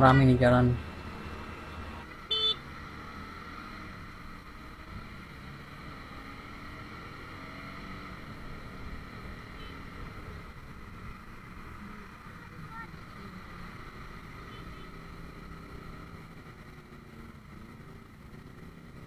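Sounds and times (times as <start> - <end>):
motorcycle engine: 0.0 - 19.0
vehicle horn beep: 2.3 - 2.6, 9.5 - 9.9.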